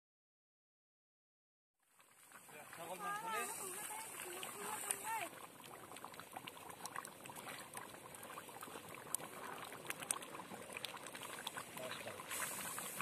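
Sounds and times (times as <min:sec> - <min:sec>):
thick curry boiling and popping: 0:05.3 - 0:13.0.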